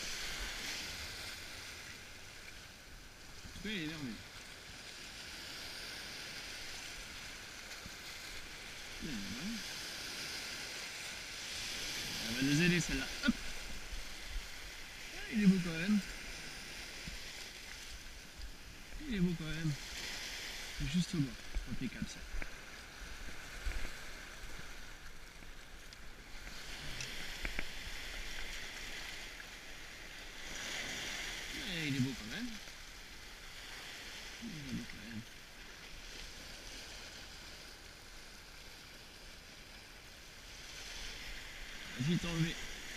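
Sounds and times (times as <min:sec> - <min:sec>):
waves breaking on rocks: 0:00.0 - 0:42.9
person humming: 0:09.0 - 0:09.7.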